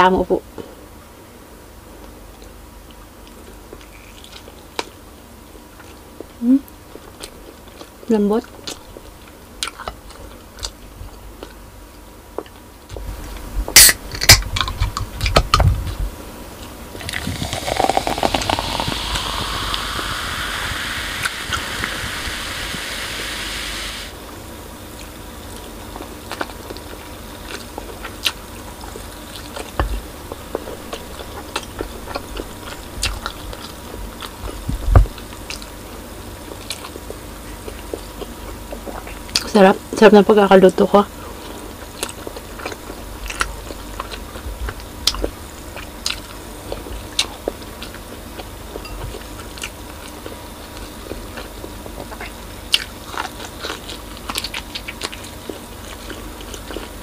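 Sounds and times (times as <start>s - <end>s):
chewing and eating clicks: 17.0s - 20.7s, 25.0s - 35.7s, 49.4s - 57.0s
soda pouring and fizzing: 17.0s - 24.2s.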